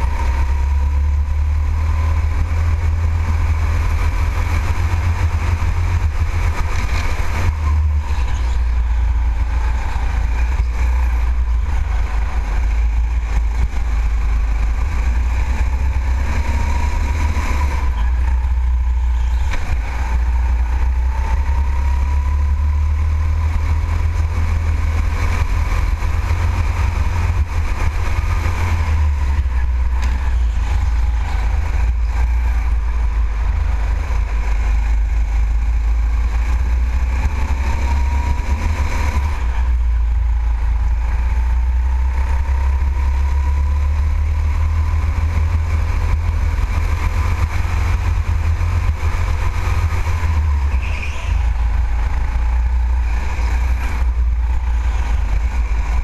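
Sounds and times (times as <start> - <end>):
go-kart motor whine: 0.0 - 56.0
wind and vibration rumble: 0.0 - 56.0.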